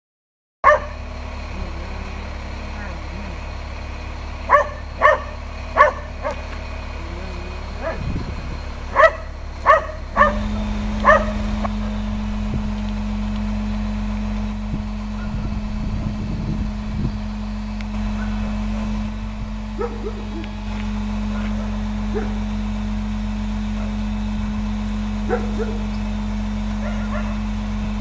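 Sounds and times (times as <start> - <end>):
dog barking: 0.6 - 1.0, 4.5 - 6.4, 7.8 - 8.1, 8.9 - 11.4, 18.2 - 18.4, 19.8 - 20.4, 21.3 - 22.4, 25.3 - 25.8, 26.8 - 27.4
crane engine running: 0.6 - 28.0.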